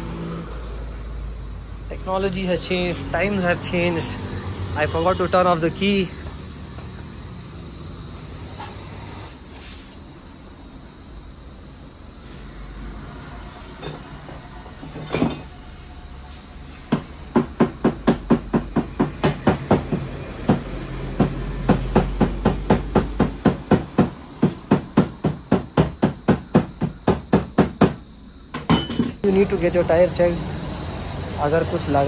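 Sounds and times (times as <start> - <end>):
hammer striking: 16.9 - 20.6.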